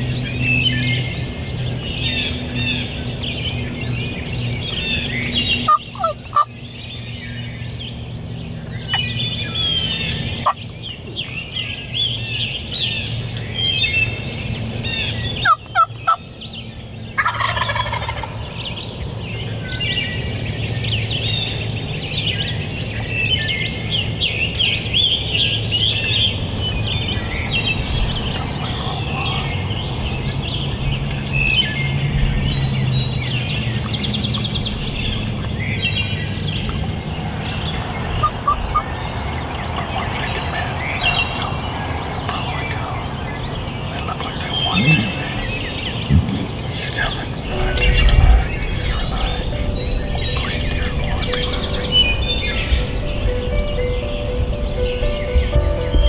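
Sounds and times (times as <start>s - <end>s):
songbirds chirping: 0.0s - 56.0s
turkey gobbling: 5.7s - 6.5s, 15.4s - 16.2s, 17.2s - 18.4s.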